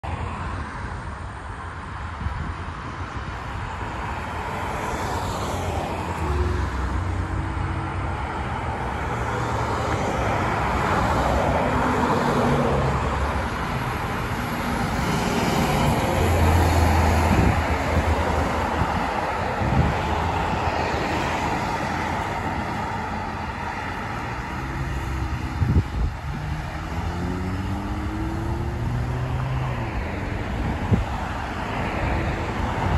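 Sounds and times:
cars driving past: 0.1 - 32.9
bus diesel engine passing: 3.6 - 32.9
vehicle accelerating: 21.0 - 31.9.

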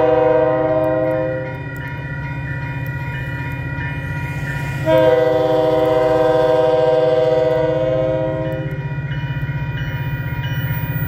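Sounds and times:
train air horn blasts: 0.0 - 1.7, 4.7 - 8.8
low rumble of approaching train: 0.0 - 11.0.

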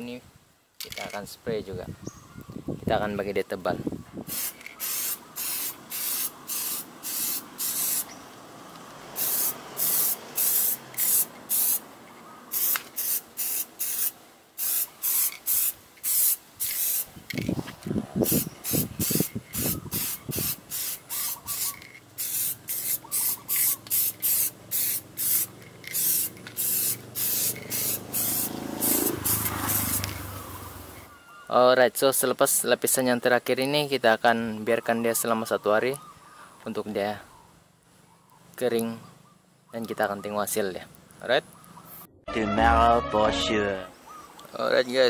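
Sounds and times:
spray can hissing in bursts: 4.3 - 8.2, 9.1 - 11.8, 12.5 - 17.1, 18.2 - 31.0.

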